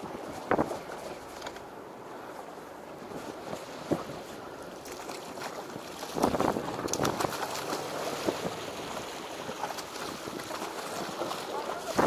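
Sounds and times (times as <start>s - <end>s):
wind noise on microphone: 0.0s - 1.5s, 6.0s - 12.0s
sea wash: 0.0s - 12.0s.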